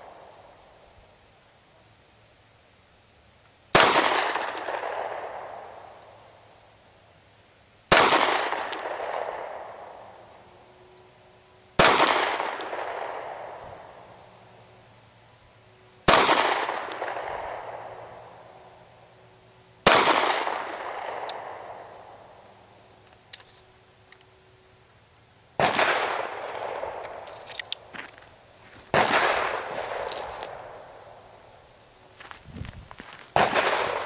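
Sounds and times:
gunshots with echo: 0:11.8 - 0:14.0, 0:28.9 - 0:30.0, 0:33.3 - 0:34.0.

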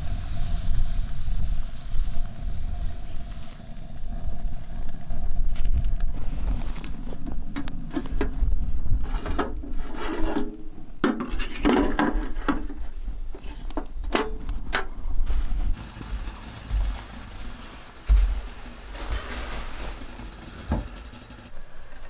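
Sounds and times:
low rumble: 0:00.0 - 0:09.8
scraping and rattling in firebox: 0:00.0 - 0:22.0.

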